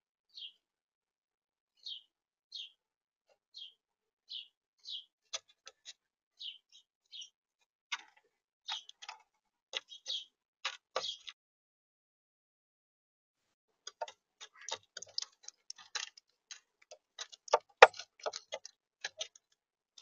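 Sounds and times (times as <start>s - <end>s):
bird bill pecking clicks: 13.9s - 19.6s.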